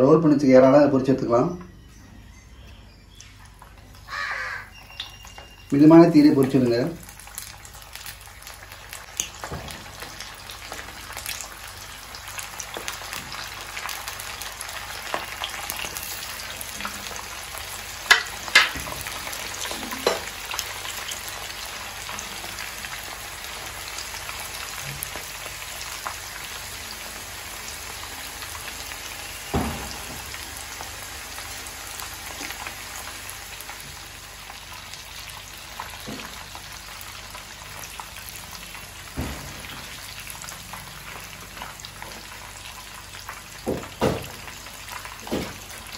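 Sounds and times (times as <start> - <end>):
spring rolls sizzling in oil: 3.2 - 45.9.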